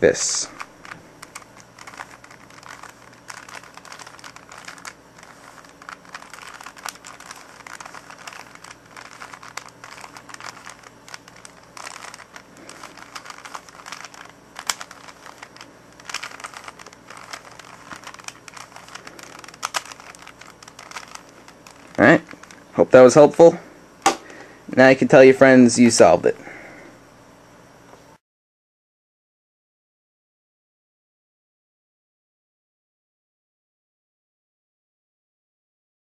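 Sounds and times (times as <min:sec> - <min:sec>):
puzzle cube plastic clicks: 0:00.2 - 0:22.6.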